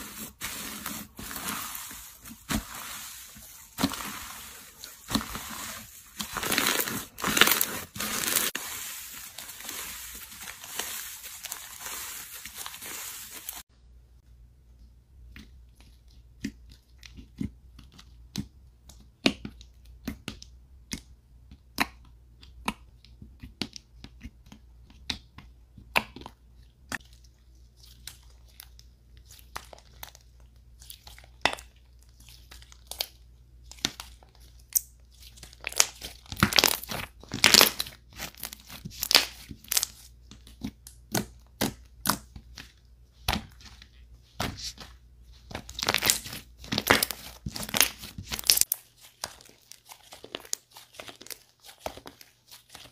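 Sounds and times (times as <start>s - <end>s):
slime popping and crackling: 5.0s - 12.2s, 33.8s - 40.0s, 45.5s - 52.9s.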